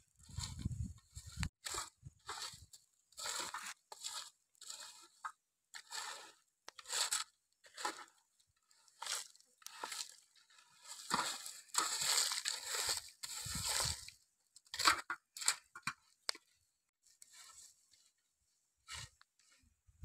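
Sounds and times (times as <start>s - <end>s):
stick scraping through ash: 0.2s - 15.9s.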